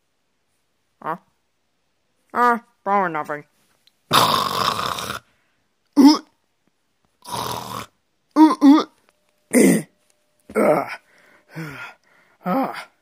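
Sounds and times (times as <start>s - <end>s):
person making vocal noises: 4.1s - 5.3s, 5.9s - 6.4s, 7.2s - 13.0s.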